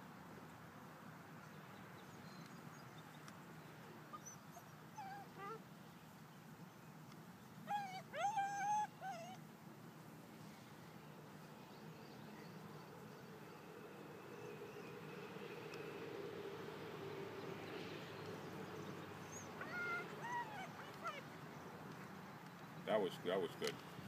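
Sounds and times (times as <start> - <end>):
faint background hum: 0.0 - 24.0
puppy whining: 4.1 - 5.6, 7.7 - 9.4, 19.3 - 21.2.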